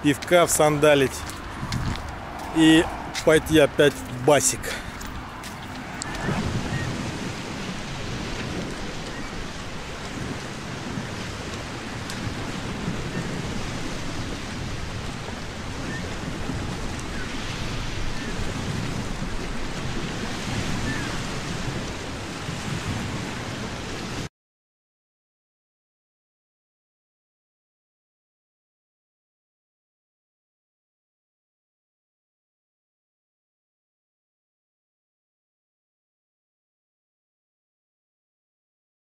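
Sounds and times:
sea surf rushing: 0.0s - 24.3s
wind buffeting microphone: 0.0s - 24.3s.

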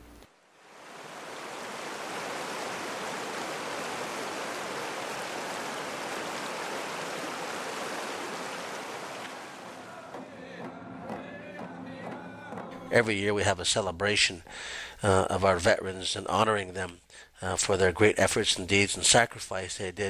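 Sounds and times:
river rushing over rocks: 0.5s - 10.2s.

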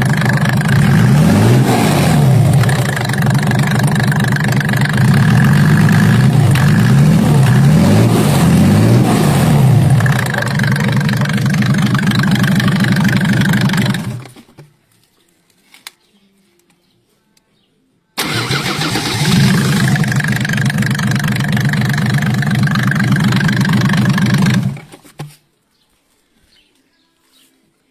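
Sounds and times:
diesel engine running: 0.0s - 14.4s, 18.2s - 24.9s.

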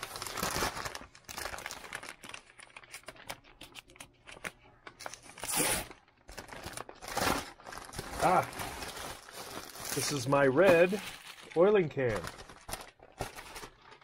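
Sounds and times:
paper bag crackling and rustling: 0.0s - 3.3s, 6.2s - 14.0s.

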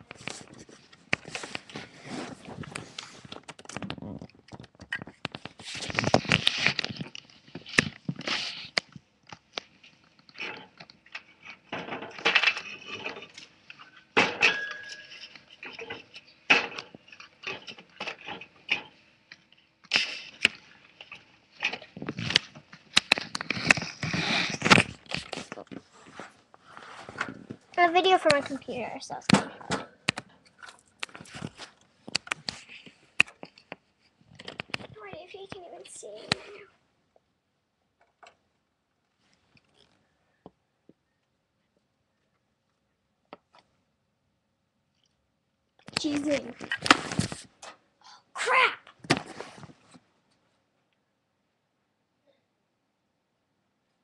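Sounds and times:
cage handling clinks and knocks: 14.2s - 18.9s.

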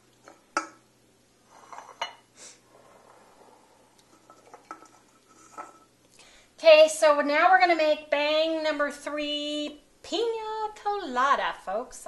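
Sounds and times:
cans and bowls clinking on stone: 4.0s - 5.9s.

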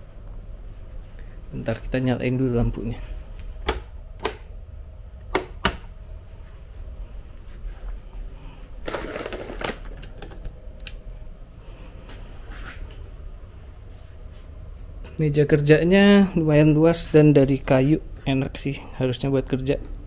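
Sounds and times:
light switch clicks: 3.6s - 4.6s, 5.2s - 5.9s.

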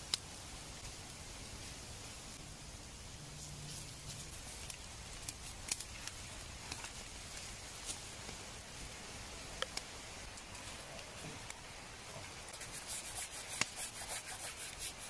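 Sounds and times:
wood fire crackling and popping: 0.0s - 2.4s, 3.6s - 11.7s
fur singeing hiss: 0.0s - 15.0s.

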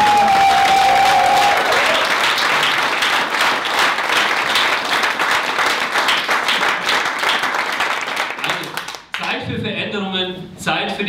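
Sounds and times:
person cheering: 0.0s - 2.1s
audience applauding: 0.0s - 9.4s.

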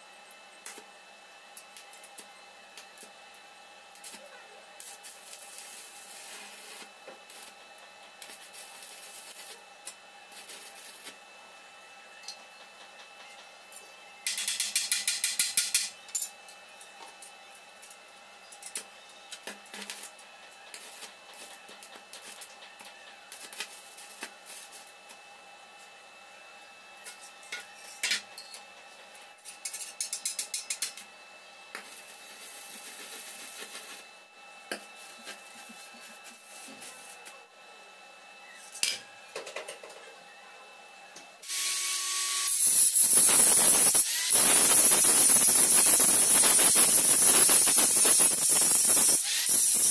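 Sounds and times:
welding arc crackle: 1.6s - 11.3s, 14.2s - 16.2s, 18.6s - 25.2s, 29.1s - 31.1s, 31.7s - 37.3s, 41.4s - 49.9s
metallic clinks of electrode: 14.2s - 16.4s, 41.4s - 49.9s.

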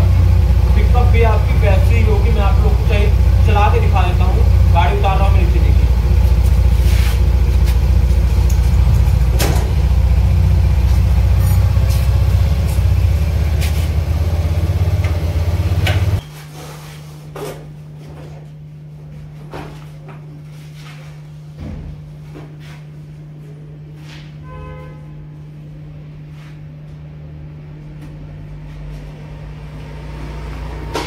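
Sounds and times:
low hum: 0.0s - 16.2s
scooter engine running: 0.0s - 16.2s.

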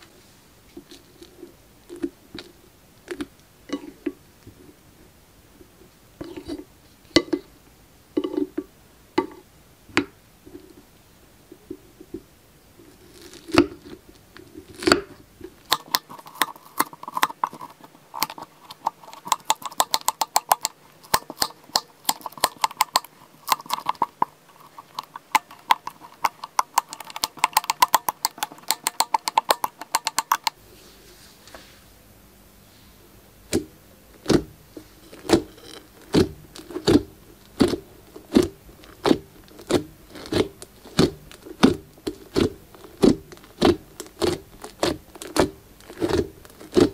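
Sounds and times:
slime crackling and clicking: 15.6s - 30.6s, 35.2s - 46.9s.

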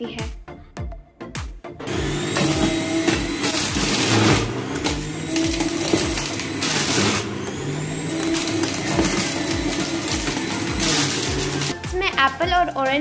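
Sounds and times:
juicer grinding carrots: 1.8s - 11.8s
juicer motor whirring: 1.8s - 11.8s.

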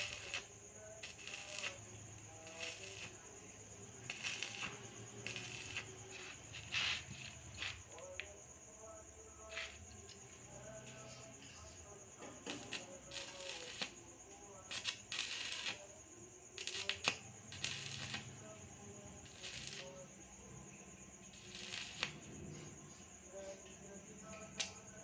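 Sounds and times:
welding arc crackling and hissing: 0.0s - 8.0s, 12.4s - 14.0s, 14.7s - 15.8s, 16.5s - 18.4s, 19.2s - 20.0s, 21.3s - 22.3s.

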